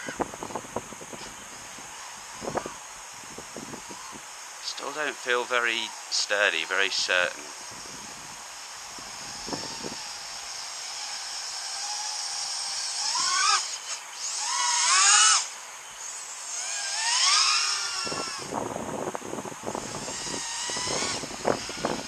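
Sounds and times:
wind buffeting microphone: 0.0s - 4.3s, 6.9s - 10.3s, 18.0s - 22.0s
drone motors whining: 0.0s - 22.0s.

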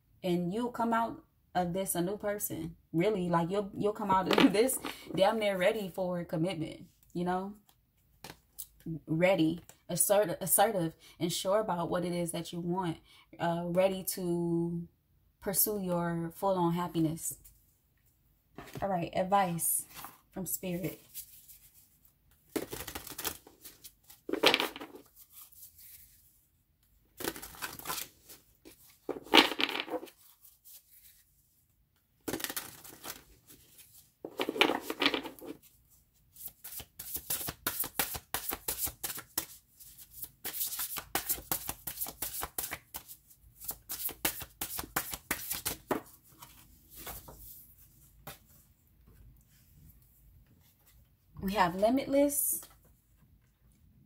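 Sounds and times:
cards being shuffled: 20.8s - 26.2s, 27.2s - 31.2s, 32.2s - 35.8s, 36.4s - 47.5s.

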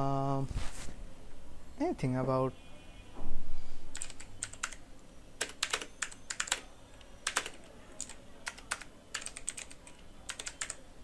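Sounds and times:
keyboard typing: 3.9s - 4.8s, 5.4s - 10.8s.

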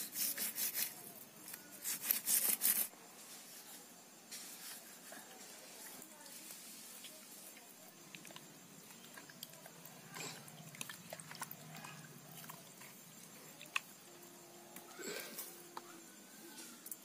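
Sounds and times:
faint water splashing: 5.2s - 17.0s.

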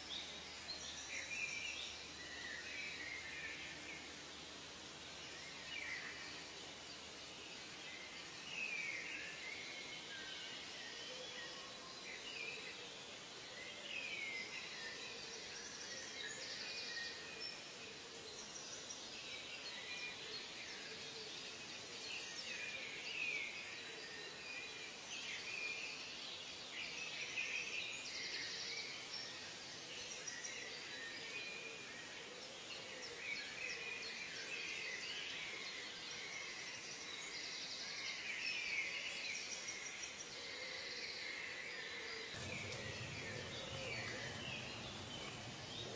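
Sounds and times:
steady background hiss: 0.0s - 45.9s
birds chirping and calling: 42.0s - 45.9s.

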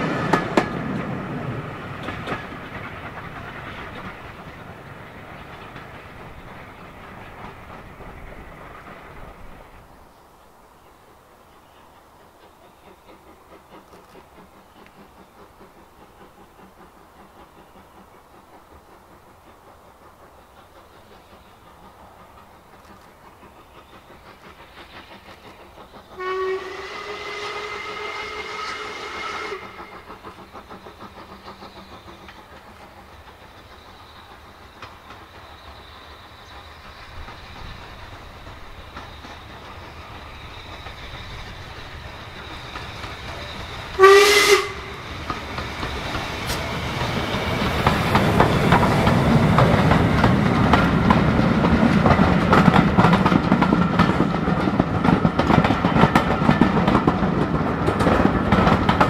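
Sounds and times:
train wheels rumbling on rails: 0.0s - 59.0s
steam locomotive whistle: 26.2s - 30.1s, 42.4s - 47.3s.

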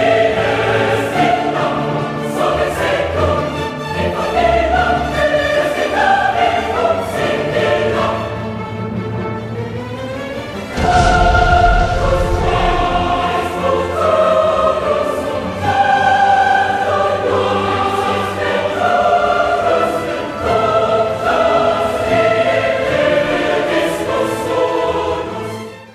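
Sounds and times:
choir singing sustained chords: 0.0s - 25.9s
deep low boom: 10.8s - 13.6s.

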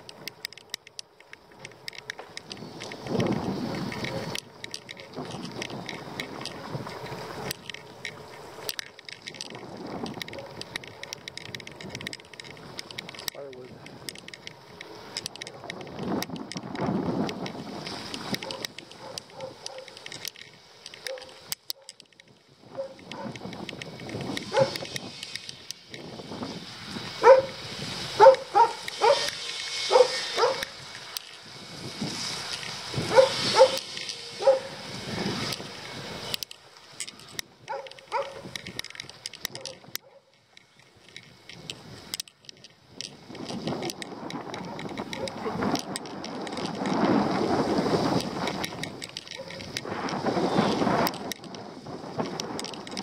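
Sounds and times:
bicycle rattling and clicking: 0.0s - 53.0s
tyre noise: 0.0s - 53.0s
wind rumbling: 0.0s - 53.0s
dog barking: 18.4s - 20.0s, 21.1s - 21.9s, 24.5s - 24.8s, 27.2s - 27.5s, 28.2s - 29.3s, 29.9s - 30.7s, 33.1s - 33.8s, 34.4s - 34.8s, 37.7s - 38.4s.

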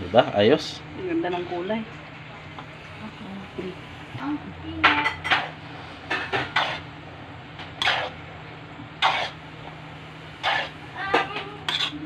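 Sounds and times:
steady low hum: 0.0s - 12.0s
metal spatula scraping a wok: 5.2s - 6.9s, 7.8s - 8.2s, 10.4s - 10.8s, 11.7s - 12.0s.

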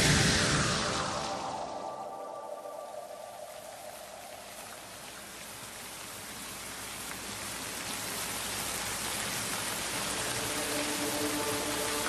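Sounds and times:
soft sustained music notes: 0.0s - 5.2s, 9.7s - 12.0s
steady rain hiss: 0.0s - 12.0s.

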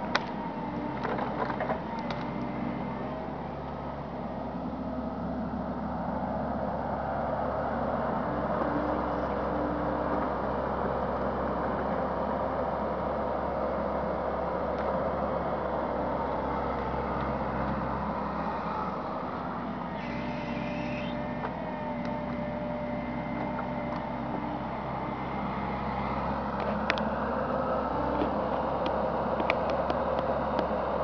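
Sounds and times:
excavator diesel engine running: 0.0s - 31.0s
thin steady whine: 18.8s - 23.2s.

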